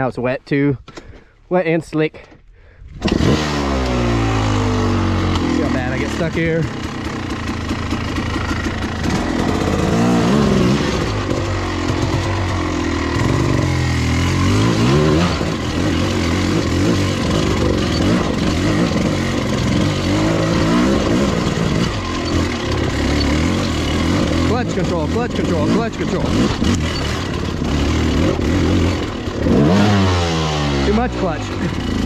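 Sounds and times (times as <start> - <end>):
dirt bike engine revving: 3.0 - 32.0.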